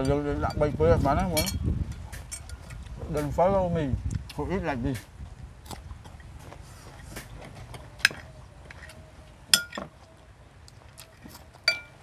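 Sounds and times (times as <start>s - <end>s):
utensils clinking on a bowl: 0.0s - 2.9s, 9.5s - 9.9s, 11.6s - 12.0s.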